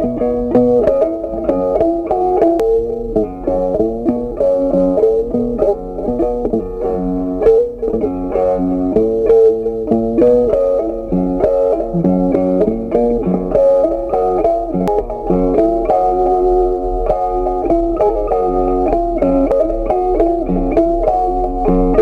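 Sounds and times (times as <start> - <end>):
plucked-string melody: 0.0 - 22.0
bass line: 7.7 - 13.6.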